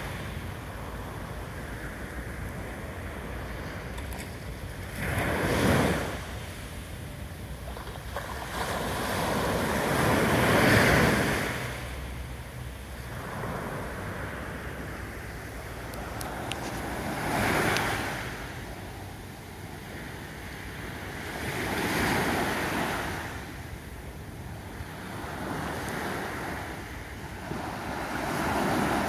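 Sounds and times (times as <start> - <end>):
small waves washing up a beach: 0.0 - 29.0.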